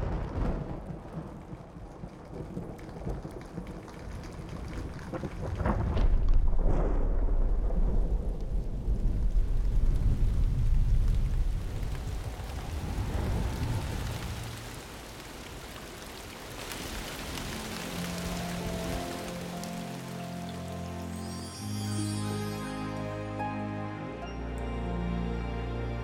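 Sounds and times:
rolling thunder: 0:00.0 - 0:15.6
steady rain: 0:00.0 - 0:26.0.

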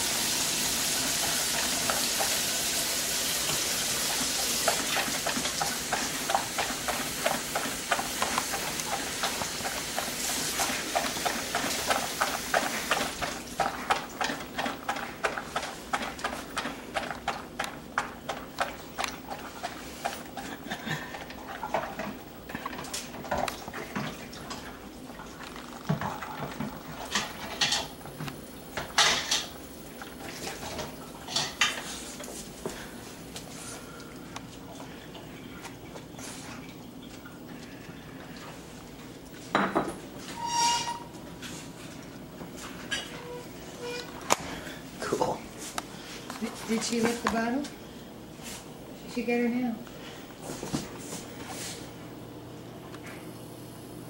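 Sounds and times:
dog lapping from bowl: 0:03.4 - 0:28.1, 0:29.9 - 0:32.2.

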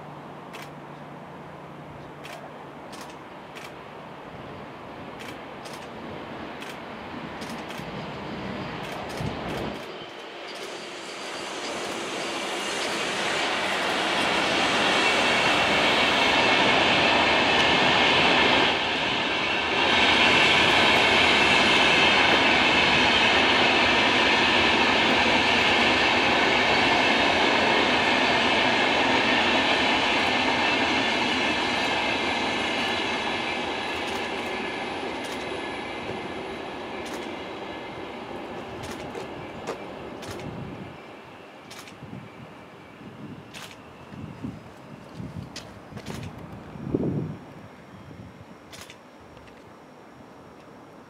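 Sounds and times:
sharp clicks: 0:02.2 - 0:03.8, 0:05.2 - 0:06.0, 0:07.4 - 0:07.9, 0:37.0 - 0:37.3, 0:38.8 - 0:40.6, 0:41.7 - 0:42.0, 0:43.5 - 0:43.8, 0:45.6 - 0:46.5, 0:48.7 - 0:49.7
train wheels rumbling: 0:04.6 - 0:49.7
high squeal: 0:09.9 - 0:17.2.

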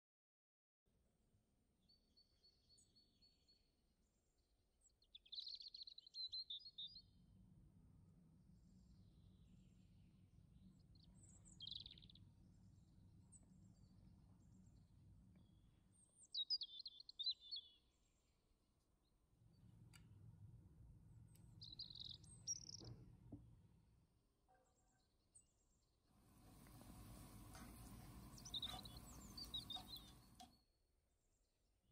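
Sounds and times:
songbird chirping: 0:04.8 - 0:07.0, 0:10.9 - 0:12.3, 0:13.3 - 0:18.1, 0:21.3 - 0:23.0, 0:26.3 - 0:30.6
low steady hum: 0:26.2 - 0:30.5.

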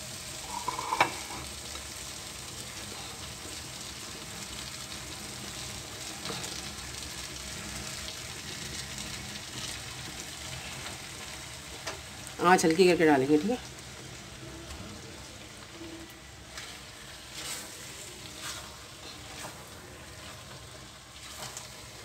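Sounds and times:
masala sizzling in an iron pan: 0:00.0 - 0:22.0.

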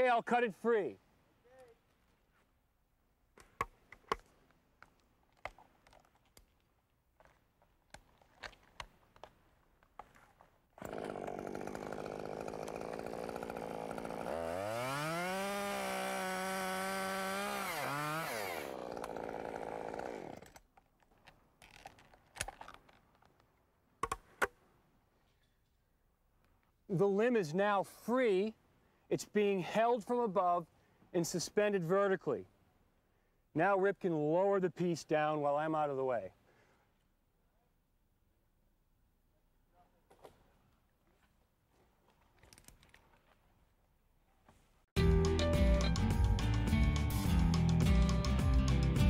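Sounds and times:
chainsaw cutting wood: 0:10.8 - 0:20.7.

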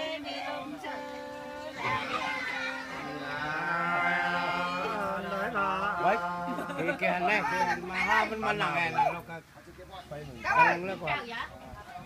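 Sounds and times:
person singing unaccompanied: 0:00.0 - 0:09.0.

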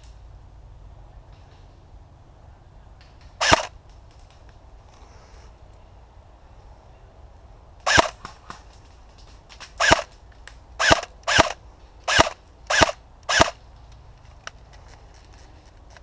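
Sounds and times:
airsoft rifle shots: 0:03.4 - 0:03.8, 0:07.8 - 0:08.7, 0:09.6 - 0:10.2, 0:10.8 - 0:13.6.

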